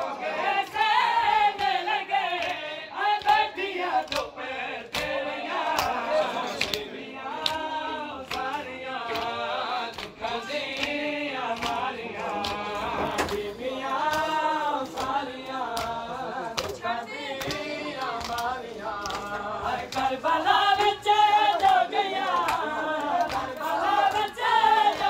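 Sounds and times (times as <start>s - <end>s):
men chanting a lament in chorus: 0.0s - 25.0s
hands slapping bare chests: 4.0s - 4.3s, 4.9s - 6.0s, 6.6s - 9.4s, 13.2s - 16.8s, 17.4s - 20.2s, 21.6s - 25.0s.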